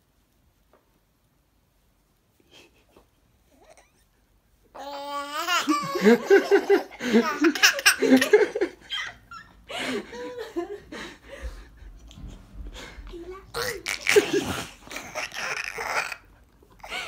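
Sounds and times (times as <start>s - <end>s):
baby laughing: 4.8s - 9.2s, 13.6s - 17.0s.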